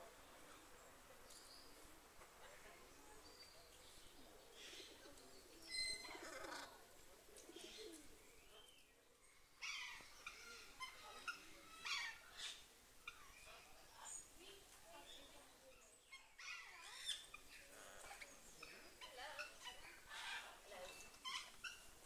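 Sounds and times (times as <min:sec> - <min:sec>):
parrots squawking and chirping: 0:05.7 - 0:06.8, 0:09.6 - 0:13.6, 0:16.1 - 0:22.0.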